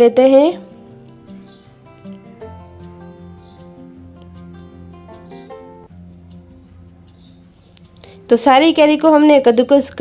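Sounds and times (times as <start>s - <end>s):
soft instrumental music: 0.0s - 10.0s
bird chirps: 0.8s - 8.4s.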